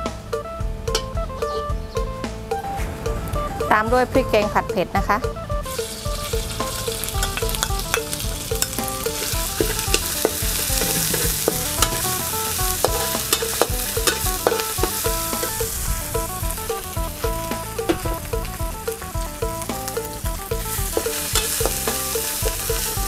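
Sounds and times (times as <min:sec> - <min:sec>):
paste sizzling in oil: 0:05.7 - 0:18.1, 0:19.8 - 0:23.0
metal spatula scraping wok: 0:05.7 - 0:23.0.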